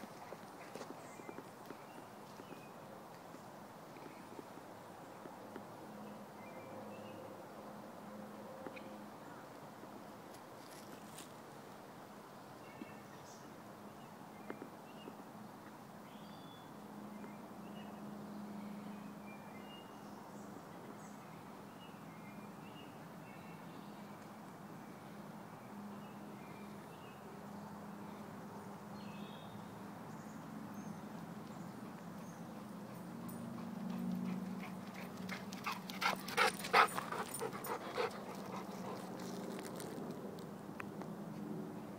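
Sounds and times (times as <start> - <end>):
dog panting: 32.6 - 39.5.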